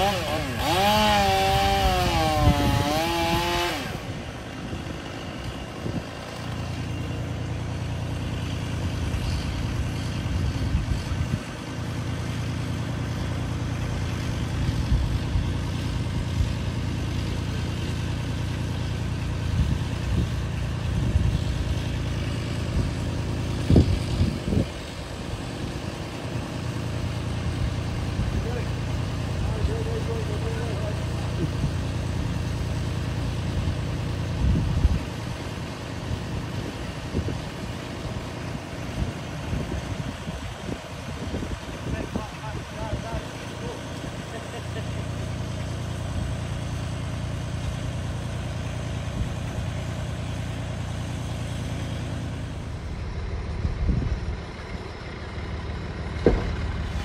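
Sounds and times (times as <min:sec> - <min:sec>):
chainsaw revving: 0:00.0 - 0:40.5, 0:41.9 - 0:53.5, 0:56.2 - 0:57.0
low steady engine hum: 0:00.0 - 0:57.0
sharp knocks: 0:56.2 - 0:56.7.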